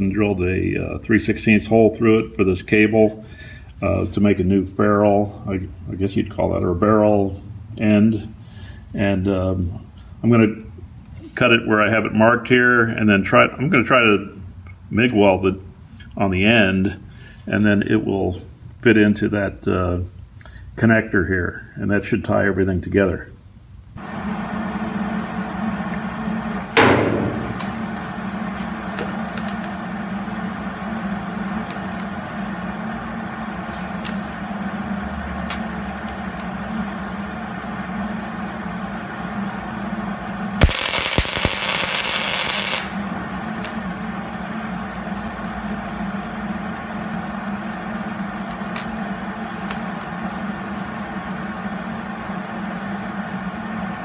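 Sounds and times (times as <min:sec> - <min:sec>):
steady low hum: 0:00.0 - 0:54.0
sharp metal clank: 0:26.8 - 0:27.7
welder hissing: 0:40.6 - 0:43.8.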